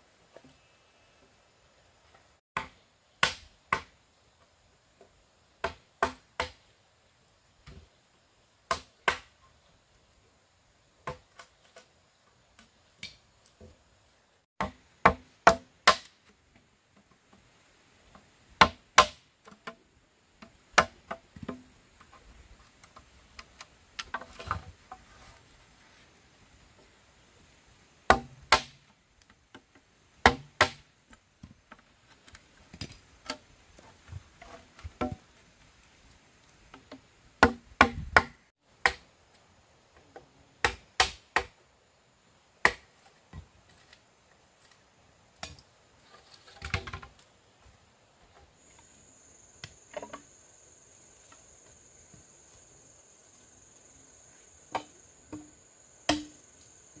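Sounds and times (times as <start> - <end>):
machete chopping bamboo: 2.6 - 3.9, 5.6 - 6.6, 8.7 - 9.3, 14.6 - 16.2, 18.6 - 19.8, 28.1 - 28.9, 30.2 - 30.9, 37.4 - 39.1, 40.6 - 41.6, 42.6 - 42.9, 56.1 - 56.4
high insect drone: 48.6 - 57.0.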